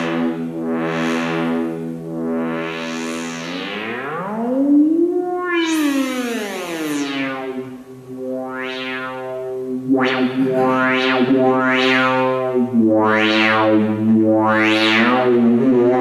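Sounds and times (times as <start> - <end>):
buzzy synthesizer drone: 0.0 - 16.0.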